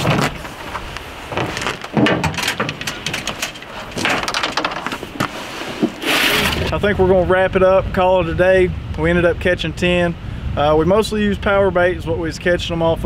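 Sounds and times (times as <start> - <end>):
fishing gear knocking and clattering: 0.0 - 5.3
rustling: 0.0 - 6.7.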